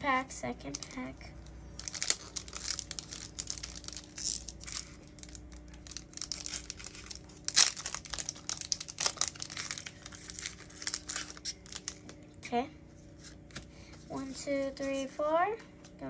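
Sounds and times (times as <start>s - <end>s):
foil pack crinkling and tearing: 1.6s - 12.3s.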